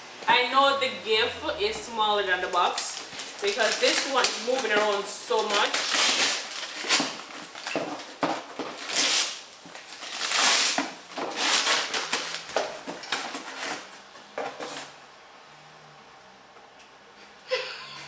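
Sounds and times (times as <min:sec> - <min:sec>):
wrapping paper tearing: 0:02.4 - 0:13.9.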